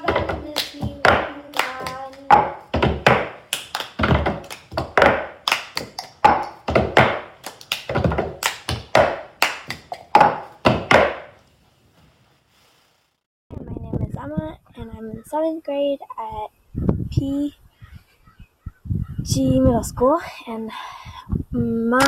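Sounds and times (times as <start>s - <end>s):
hand claps: 0.0s - 11.3s
plastic cups tapped on table: 4.0s - 9.2s, 9.8s - 11.2s.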